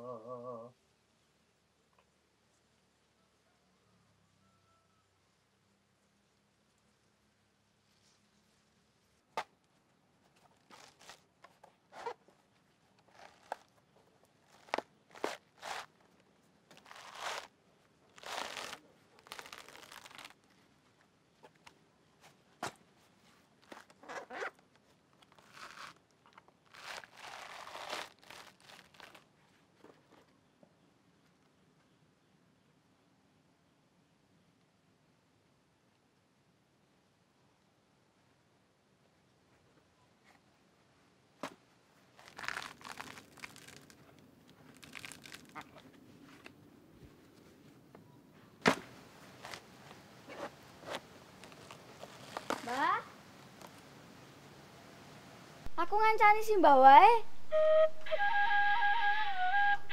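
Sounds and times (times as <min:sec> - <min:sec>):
coconut husk ripping: 0:10.3 - 0:12.3, 0:12.9 - 0:20.7, 0:23.4 - 0:29.4, 0:41.4 - 0:46.5, 0:48.6 - 0:53.8.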